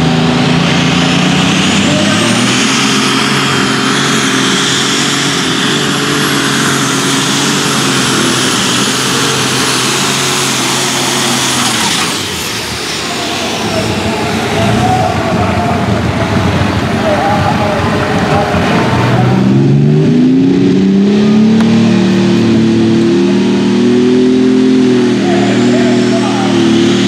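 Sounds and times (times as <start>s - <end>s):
tractor engine running under load: 0.0s - 19.9s.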